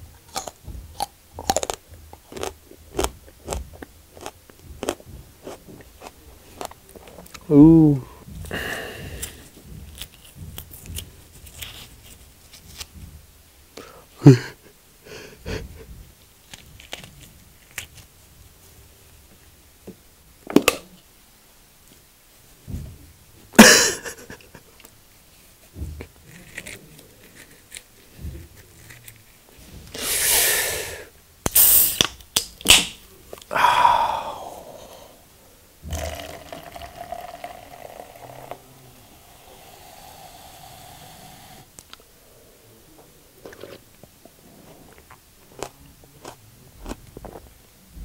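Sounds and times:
soda can opening with hiss: 29.9s - 33.0s
soda pouring and fizzing: 35.9s - 41.6s.

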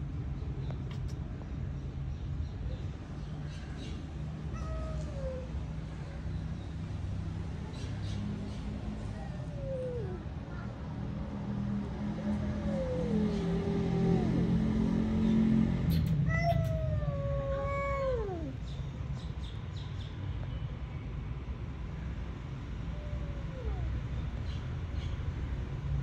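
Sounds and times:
cats growling: 4.5s - 5.6s, 9.0s - 10.4s, 12.0s - 18.7s, 22.8s - 24.1s
cats yowling: 4.5s - 5.7s, 9.0s - 10.7s, 12.0s - 18.7s, 22.8s - 24.2s.

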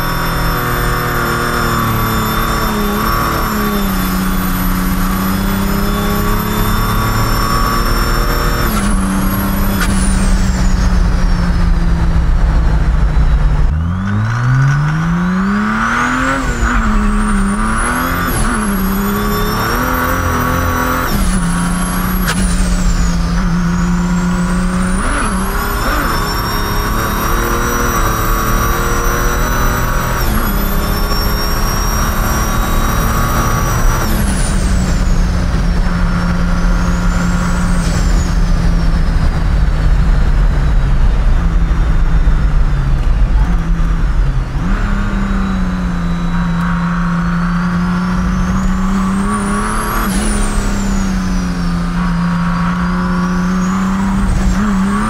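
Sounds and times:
diesel engine drone: 0.0s - 55.0s
high turbo whine: 0.0s - 55.0s.

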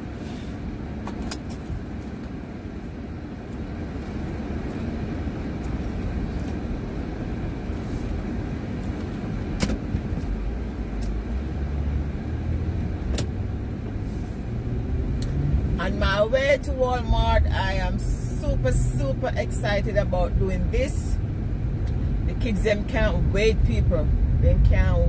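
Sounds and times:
car engine and road noise: 0.0s - 25.0s.

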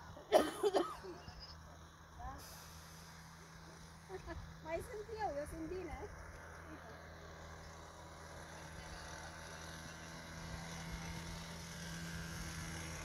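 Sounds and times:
small go-kart engine running: 0.0s - 13.0s.

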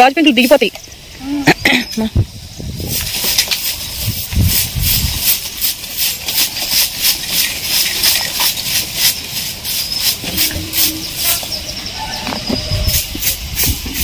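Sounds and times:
broom sweeping rough ground: 2.6s - 14.0s.

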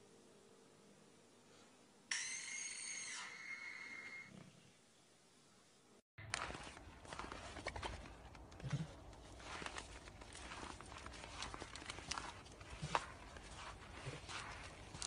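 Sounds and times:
footsteps crunching on snow: 6.2s - 15.0s.

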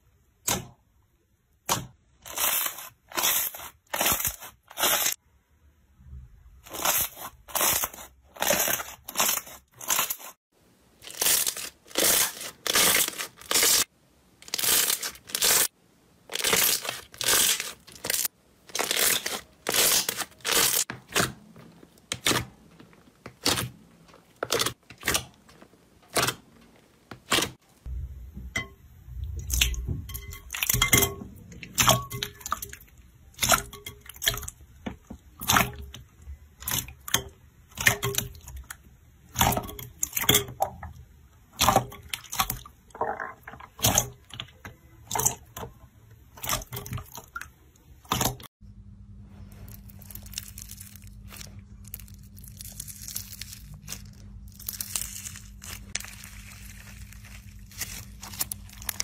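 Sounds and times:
slime squelching and crackling: 1.7s - 5.2s, 6.6s - 10.4s, 11.0s - 28.0s, 41.5s - 45.7s, 49.5s - 59.0s.

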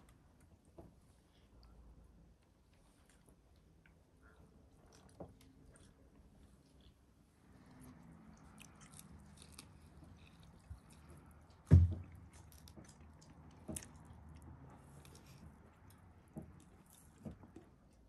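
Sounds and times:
quiet chewing: 0.0s - 18.0s
loud thump: 11.7s - 12.0s.

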